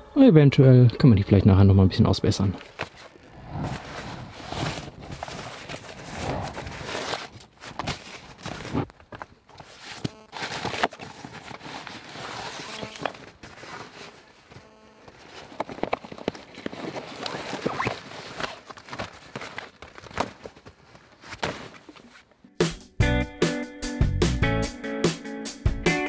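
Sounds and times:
camping gear rustling and knocking: 0:02.6 - 0:22.3.

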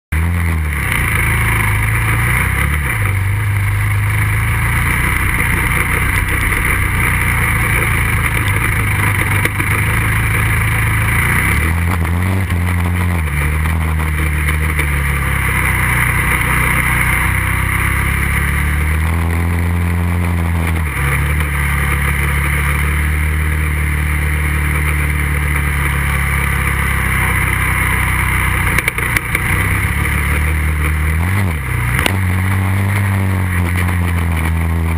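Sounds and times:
quad engine revving: 0:00.1 - 0:34.9.

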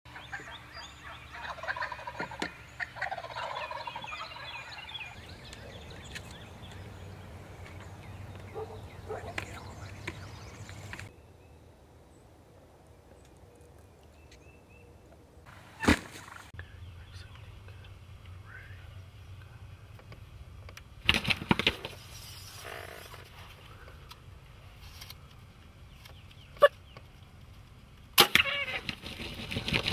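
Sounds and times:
turkey gobbling: 0:00.1 - 0:05.1, 0:28.2 - 0:28.9
small birds chirping: 0:00.1 - 0:12.3, 0:16.5 - 0:19.9, 0:25.3 - 0:27.7.

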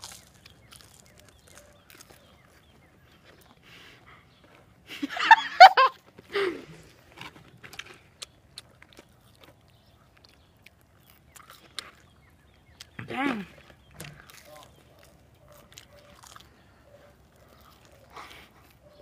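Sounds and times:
chewing clicks: 0:00.0 - 0:04.7, 0:07.2 - 0:19.0
girl laughing: 0:04.9 - 0:06.7.

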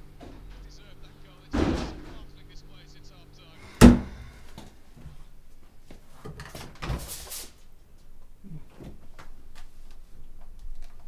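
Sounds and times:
refrigerator door clicks and knocks: 0:03.8 - 0:04.2.

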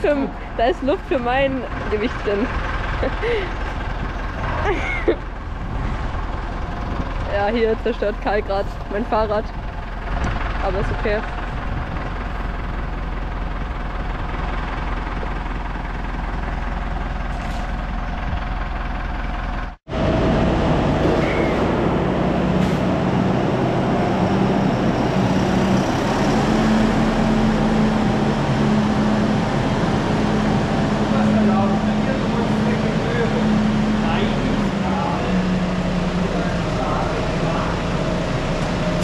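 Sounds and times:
machinery running: 0:00.0 - 0:39.0.

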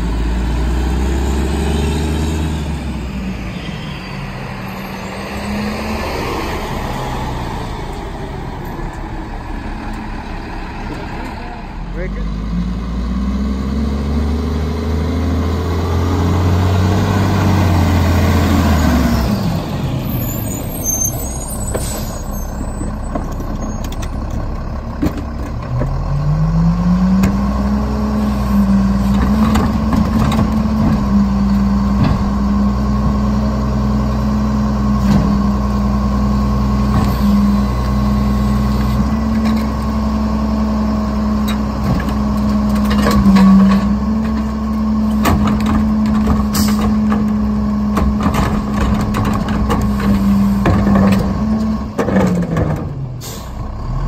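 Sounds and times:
diesel truck engine: 0:00.0 - 0:54.0
air brake hiss: 0:53.2 - 0:53.6.

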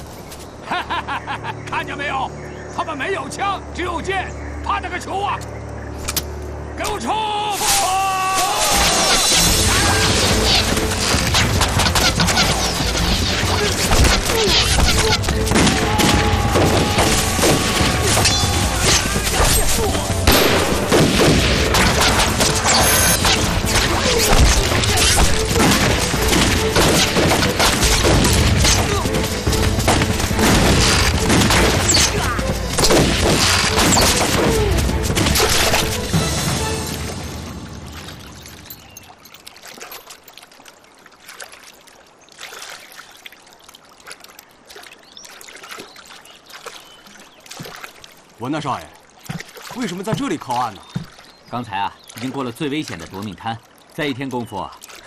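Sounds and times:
splashes from boat poles: 0:06.0 - 0:55.0
men shouting: 0:06.9 - 0:10.5, 0:13.5 - 0:20.4
low watery hiss: 0:35.6 - 0:55.0.

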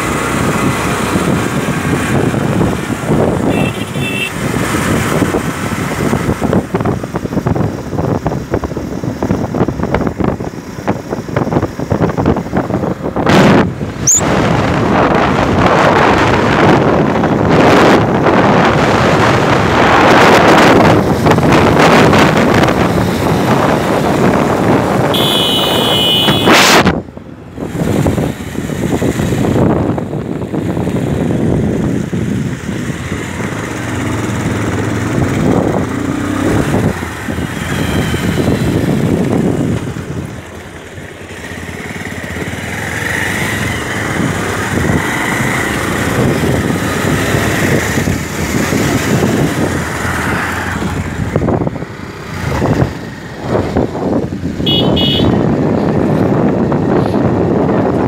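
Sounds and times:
wind buffeting microphone: 0:00.0 - 0:03.6, 0:04.4 - 0:25.3, 0:26.5 - 0:58.0
motorcycle engines running: 0:00.0 - 0:58.0
short high-pitched tone: 0:14.0 - 0:14.3.

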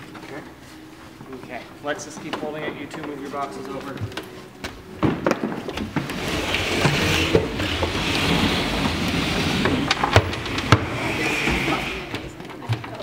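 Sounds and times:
wooden boxes scraping across floor: 0:05.1 - 0:12.6.

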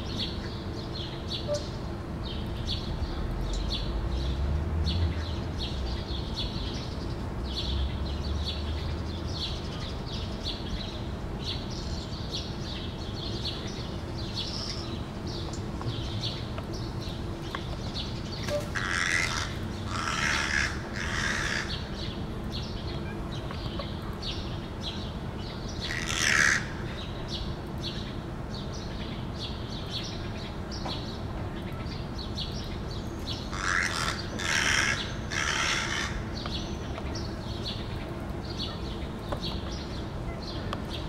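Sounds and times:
small birds chirping: 0:00.0 - 0:41.0
crows cawing: 0:18.6 - 0:21.9, 0:25.9 - 0:26.9, 0:33.5 - 0:36.4.

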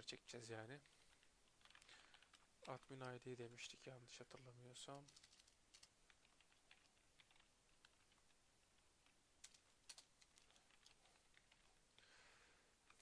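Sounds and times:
keyboard typing: 0:00.8 - 0:03.2, 0:04.3 - 0:12.1.

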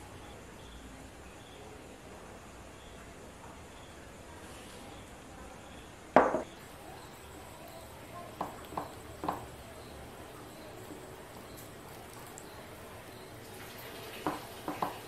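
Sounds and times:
bowl knocking on wooden table: 0:06.2 - 0:06.6, 0:14.3 - 0:15.0.

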